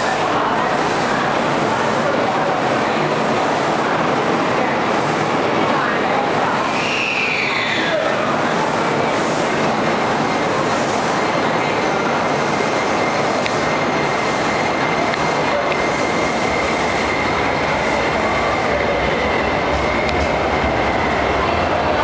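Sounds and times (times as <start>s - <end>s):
subway train rumbling with whine: 0.0s - 22.0s.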